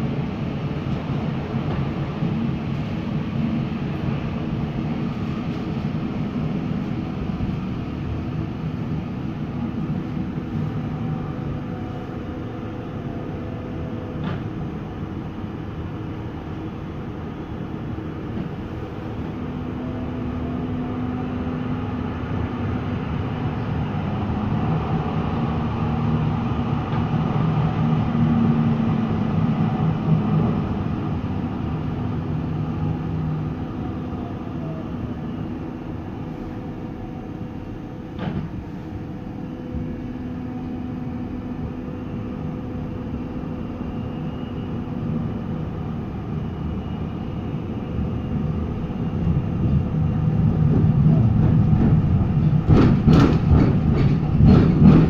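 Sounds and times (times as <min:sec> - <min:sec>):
train interior hum: 0:00.0 - 0:55.0
wheel clatter over track: 0:50.6 - 0:55.0
wheels rolling on rails: 0:50.7 - 0:55.0.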